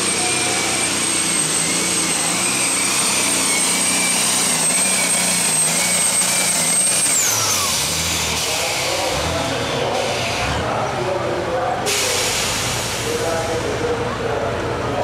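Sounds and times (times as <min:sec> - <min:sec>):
diesel engine under load: 0:00.0 - 0:15.0.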